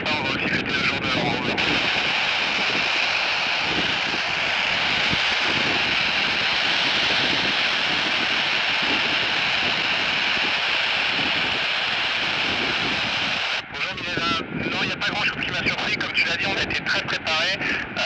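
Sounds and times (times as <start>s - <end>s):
radio static hissing: 0.0s - 18.0s.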